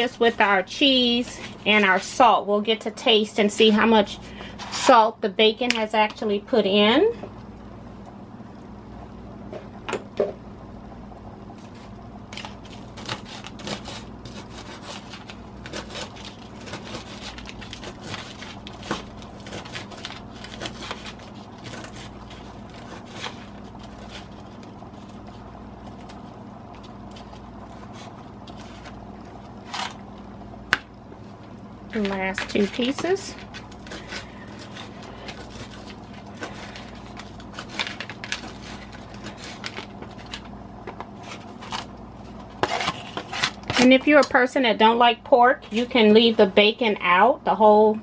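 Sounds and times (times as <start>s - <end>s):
steady low hum: 0.0s - 48.0s
crisp bacon being cut: 11.7s - 30.1s, 32.0s - 40.4s.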